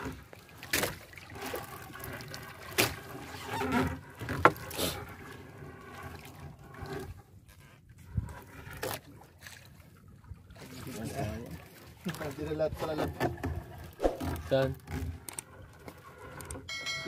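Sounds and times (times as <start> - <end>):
wet net being hauled: 0.0 - 9.8.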